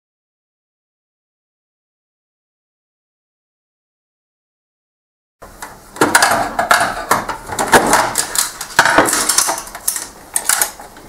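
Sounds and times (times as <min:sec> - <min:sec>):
plastic knocks and rattles: 0:06.0 - 0:11.0.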